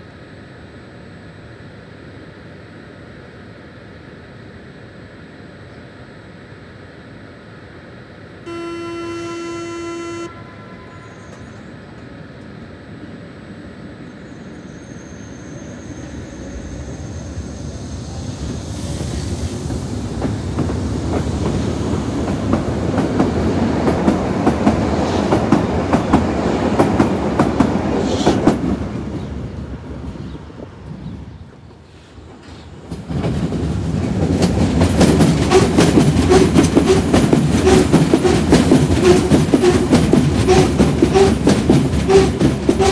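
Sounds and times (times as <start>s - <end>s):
electric train accelerating: 0.1s - 42.9s
steady warning tone: 8.4s - 13.0s, 35.5s - 42.9s
rail-joint clicks: 11.0s - 12.6s, 31.5s - 42.9s.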